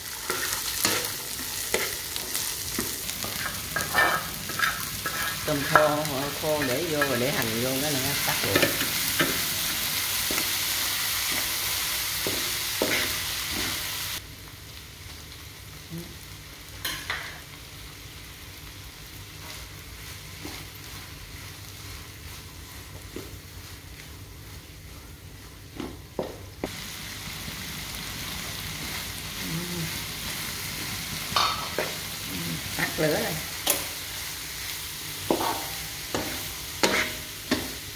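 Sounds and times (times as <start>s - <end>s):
food sizzling in a pan: 0.0s - 37.9s
wooden spatula scraping a pan: 0.2s - 7.2s, 35.3s - 37.8s.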